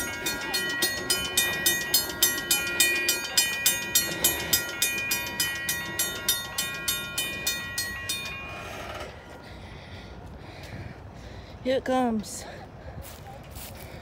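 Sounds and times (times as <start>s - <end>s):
railroad crossing bell ringing: 0.0s - 10.3s.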